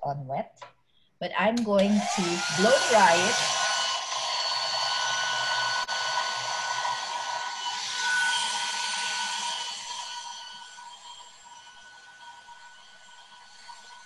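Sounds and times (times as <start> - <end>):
hair dryer blowing: 1.6 - 14.0.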